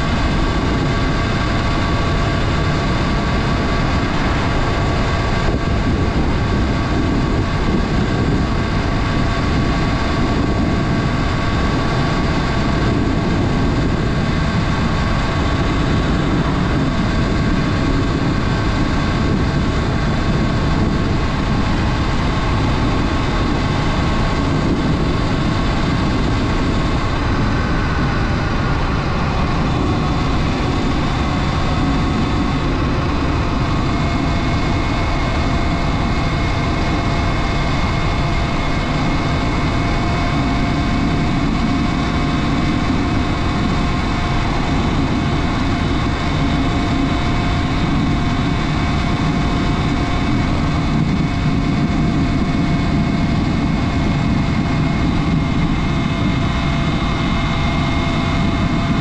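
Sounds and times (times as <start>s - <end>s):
electric motor whine: 0.0s - 59.0s
wind rumble on microphone: 0.0s - 59.0s.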